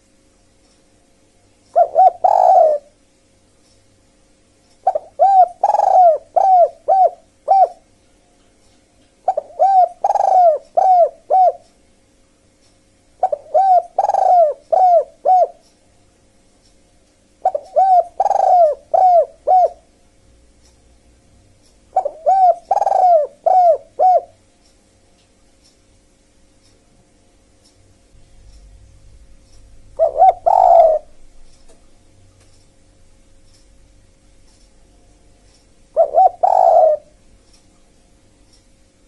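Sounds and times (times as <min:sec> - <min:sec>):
dove cooing: 0:01.8 - 0:03.0, 0:04.8 - 0:07.8, 0:09.3 - 0:11.6, 0:13.2 - 0:15.6, 0:17.4 - 0:19.9, 0:22.0 - 0:24.4, 0:30.0 - 0:31.2, 0:35.9 - 0:37.2.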